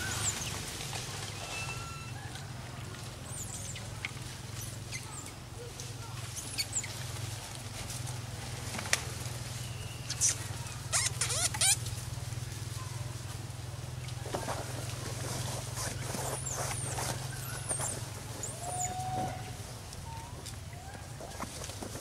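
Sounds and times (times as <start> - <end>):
monkeys squeaking and chirping: 0.0 - 0.6, 6.3 - 7.0, 9.7 - 11.9, 15.7 - 19.1.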